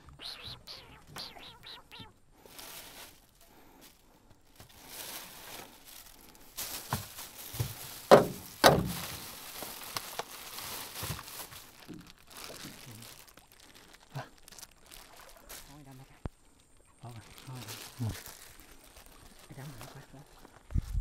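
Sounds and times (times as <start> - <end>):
plastic bags crinkling: 2.4 - 15.9, 17.1 - 20.6
loud knocks: 8.1 - 9.0.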